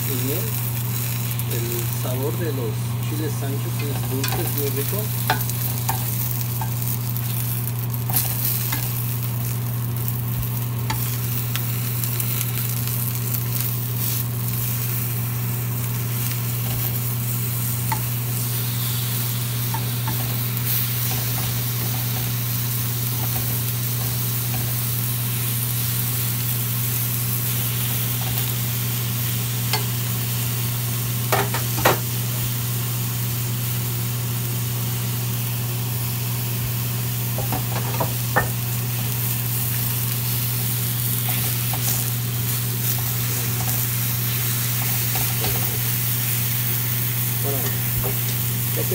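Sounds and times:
vegetables sizzling in frying pan: 0.0s - 48.9s.

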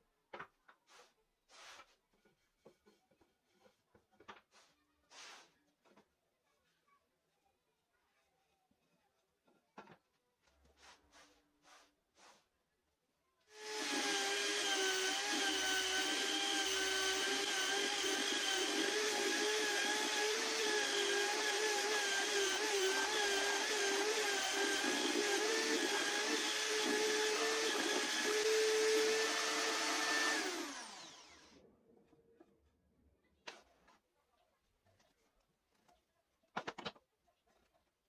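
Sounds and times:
electric drill sanding wood: 13.6s - 31.5s.

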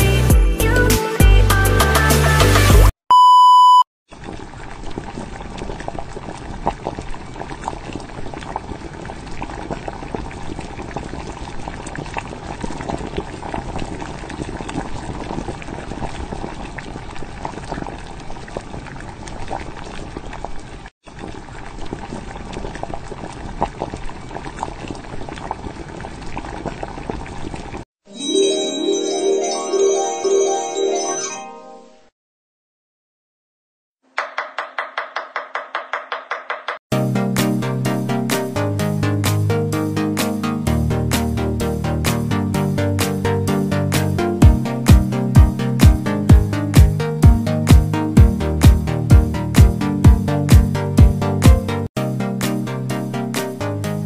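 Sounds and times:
food bubbling in a pot: 4.1s - 27.9s.

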